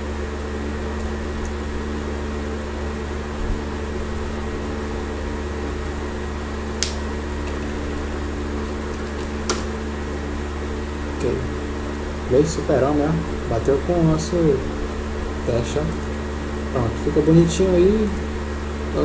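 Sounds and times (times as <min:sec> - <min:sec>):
low mechanical hum: 0:00.0 - 0:19.0
sharp clicks: 0:06.8 - 0:07.0.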